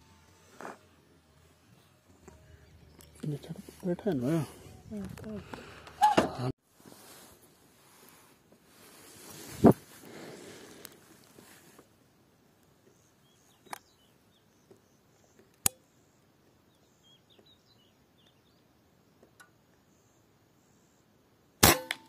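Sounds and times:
small birds chirping: 12.7s - 21.1s
air rifle shot: 21.6s - 22.0s.

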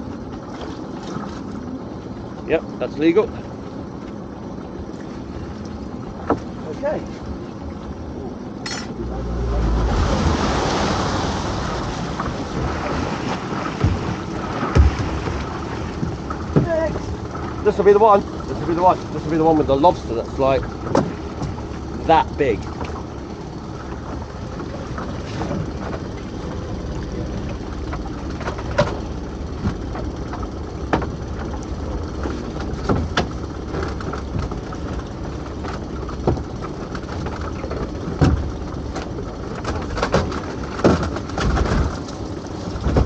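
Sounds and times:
steady low running hum: 0.0s - 43.0s
rope and gear knocking on hull: 6.1s - 7.4s, 12.0s - 43.0s.

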